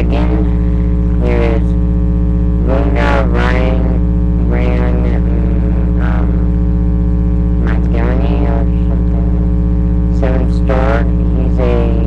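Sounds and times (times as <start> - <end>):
boy speaking: 0.0 - 1.8, 2.6 - 6.5, 7.6 - 9.4, 10.2 - 12.0
electrical mains hum: 0.0 - 12.0.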